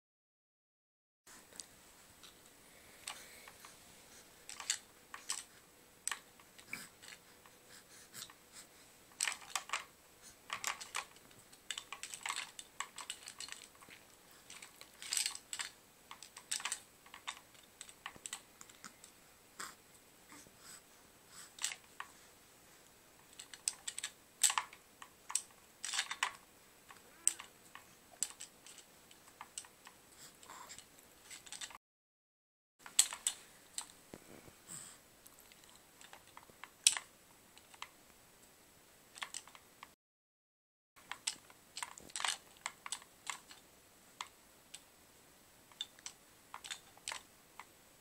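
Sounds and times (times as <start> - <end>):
plastic toys clicking and rattling: 4.4 - 7.6, 9.1 - 18.9, 21.4 - 22.2, 23.2 - 31.8, 32.8 - 34.0, 35.4 - 38.0, 39.1 - 39.7, 41.0 - 43.6, 45.7 - 47.7.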